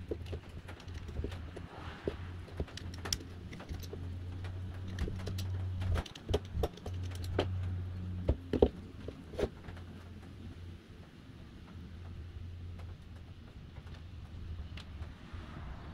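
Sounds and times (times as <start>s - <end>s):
metal parts clicking and tapping: 0.0s - 1.6s, 2.4s - 9.5s.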